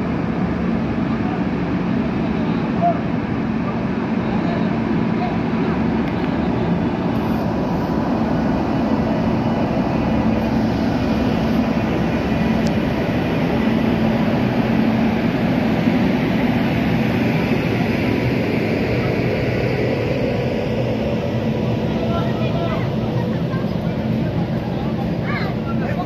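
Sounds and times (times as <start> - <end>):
locomotive low hum: 0.0 - 26.0
train wheels on rails: 0.0 - 26.0.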